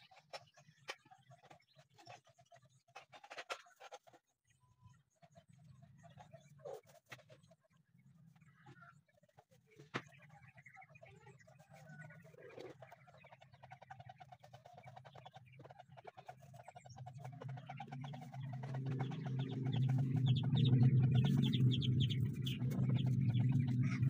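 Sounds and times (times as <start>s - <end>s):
chickens clucking: 0.0s - 4.4s, 5.2s - 24.0s.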